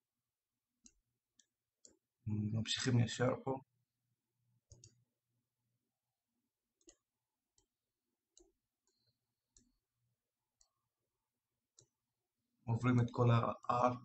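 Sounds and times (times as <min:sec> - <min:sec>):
computer mouse clicks: 0:04.6 - 0:05.0, 0:06.8 - 0:07.7, 0:08.4 - 0:09.8.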